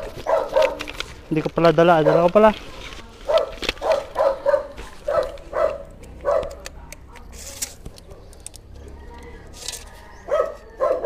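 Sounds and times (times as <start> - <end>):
dog barking: 0.0 - 0.9, 2.0 - 2.4, 3.2 - 7.3, 10.2 - 11.0.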